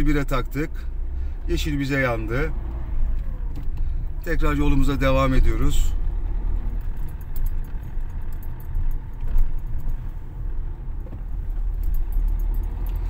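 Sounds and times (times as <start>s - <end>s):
car engine and road rumble: 0.0s - 13.0s
high-pitched clicking and jingling: 6.8s - 10.2s, 11.4s - 13.0s.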